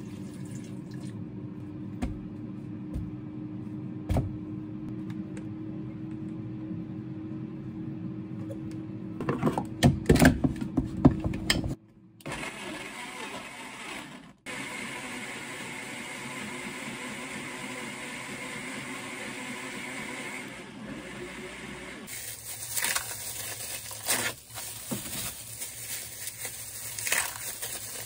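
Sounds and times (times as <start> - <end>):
blender whirring: 12.2 - 22.1.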